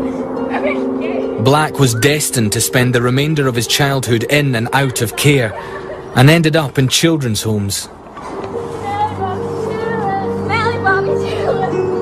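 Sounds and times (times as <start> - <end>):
wavering higher melody line: 0.0 - 6.4, 8.5 - 12.0
sustained low music notes: 0.0 - 6.7.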